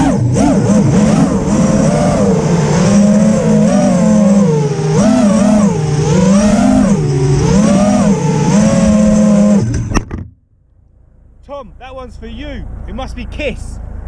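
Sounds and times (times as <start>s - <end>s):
drone motors buzzing: 0.0s - 10.2s
drone landing knocks: 9.6s - 10.4s.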